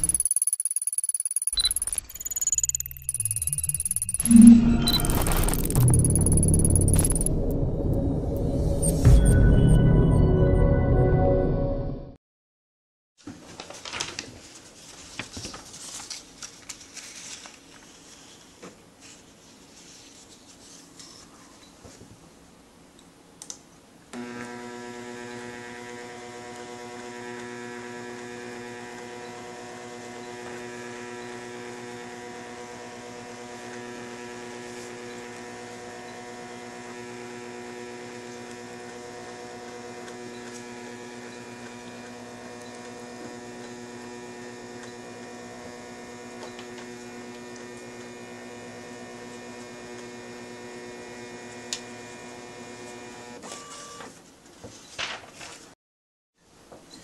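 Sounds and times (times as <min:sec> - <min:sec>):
scanner motor whine: 0:00.0 - 0:07.9.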